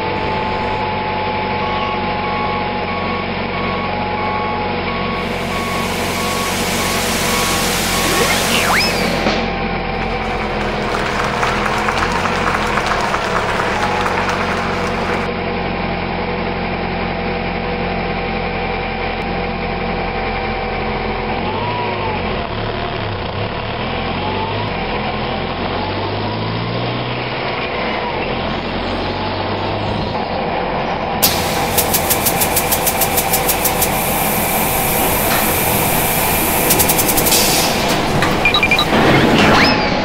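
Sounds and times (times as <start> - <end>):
cartoon truck engine: 0.0 - 40.0
rapid clicks: 31.2 - 39.0.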